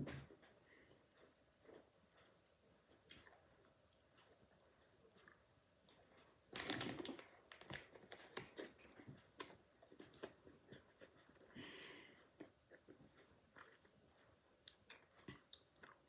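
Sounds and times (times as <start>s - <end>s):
child chewing crunchy snack: 0.2s - 16.0s.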